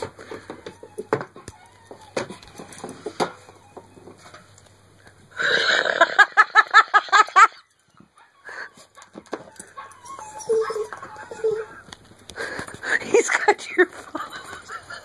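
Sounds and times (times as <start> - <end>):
coyote pup yelps from phone speaker: 9.6 - 11.9.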